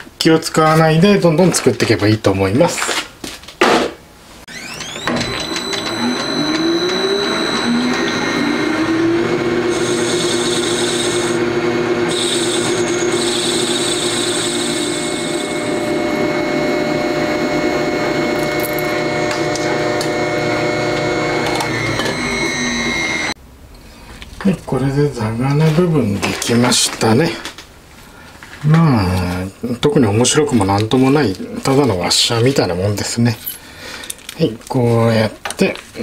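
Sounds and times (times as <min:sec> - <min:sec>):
metal lathe motor running: 0:04.5 - 0:23.4.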